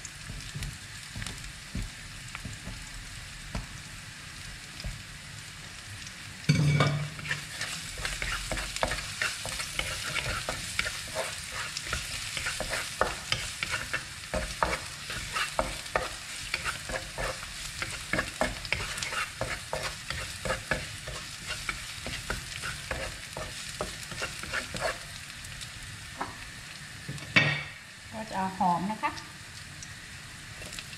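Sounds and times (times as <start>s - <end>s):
stir-fry sizzling in frying pan: 0.0s - 30.9s
spatula scraping and clacking pan: 6.6s - 25.1s.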